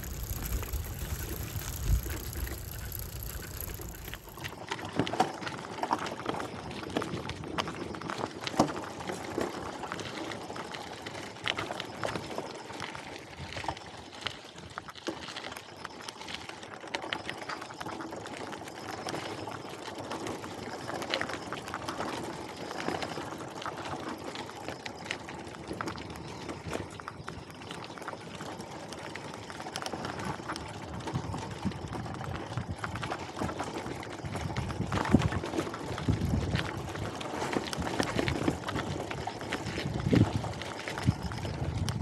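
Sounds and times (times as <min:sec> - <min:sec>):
rattle of small clicks: 0:00.0 - 0:05.1, 0:29.2 - 0:42.0
bicycle rolling noise: 0:00.0 - 0:42.0.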